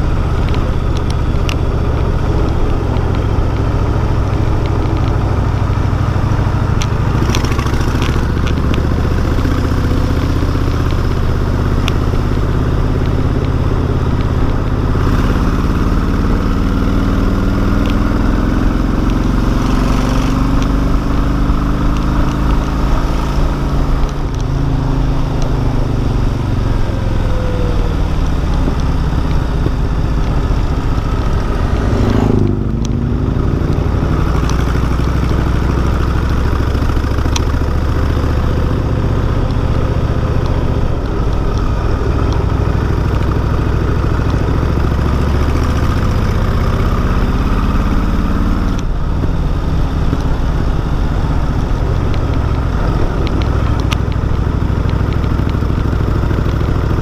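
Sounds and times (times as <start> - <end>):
motorcycle engine accelerating: 0.0 - 57.0
wind and road noise: 0.0 - 57.0.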